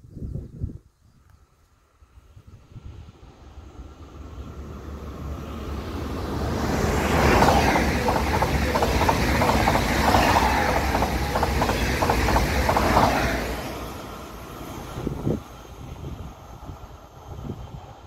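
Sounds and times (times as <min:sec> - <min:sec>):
train wheels clicking over rails: 0:05.6 - 0:15.4.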